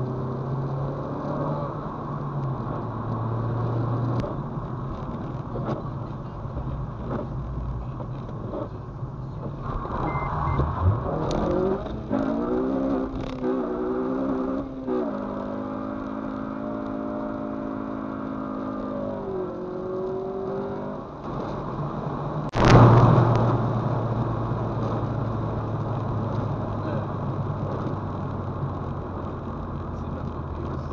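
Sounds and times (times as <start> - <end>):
car engine accelerating: 0.0 - 30.9
loud rush of noise: 9.6 - 12.8, 22.5 - 25.1.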